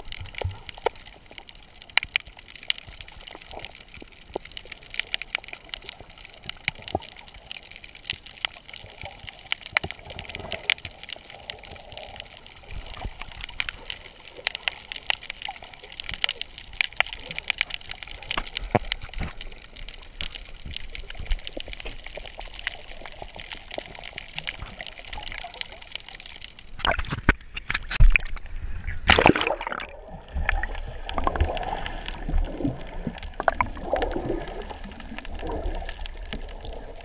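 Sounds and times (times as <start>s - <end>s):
underwater sloshing and rumbling: 0.0s - 37.0s.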